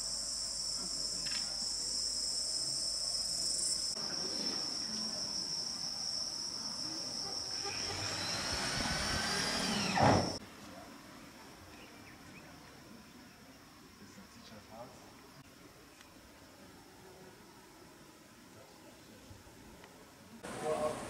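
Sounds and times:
insects shrilling: 0.0 - 10.4.

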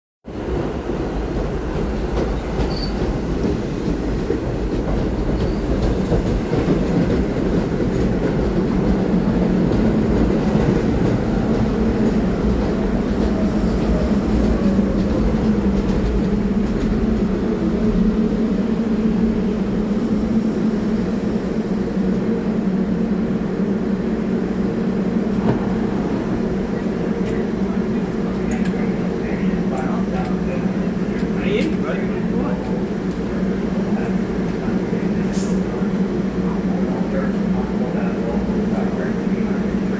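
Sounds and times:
subway train rumbling to a stop: 0.2 - 39.9.

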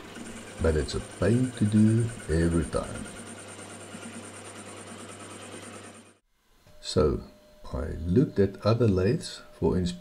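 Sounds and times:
lathe motor hum: 0.0 - 6.2.

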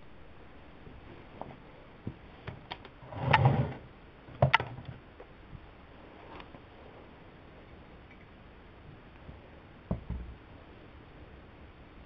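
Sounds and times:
muffled handling rustle: 5.2 - 7.1.

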